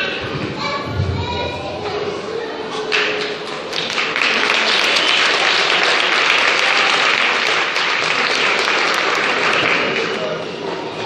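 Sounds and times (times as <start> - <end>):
audience applauding: 2.9 - 10.4.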